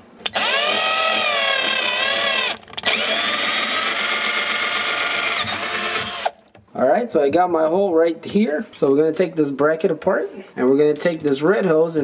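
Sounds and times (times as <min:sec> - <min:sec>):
cordless drill boring plastic: 0:00.2 - 0:06.4.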